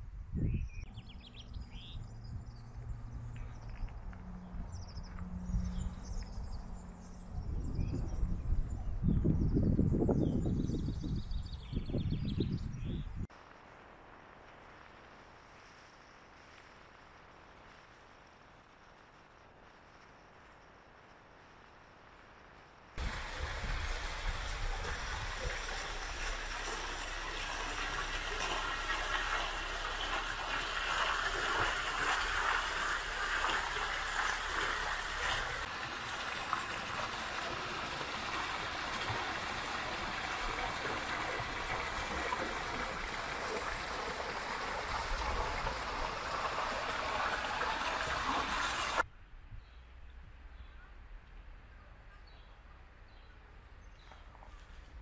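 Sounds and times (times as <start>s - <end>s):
quiet outdoor background: 0.0s - 55.0s
fountain water splashing: 23.0s - 49.0s.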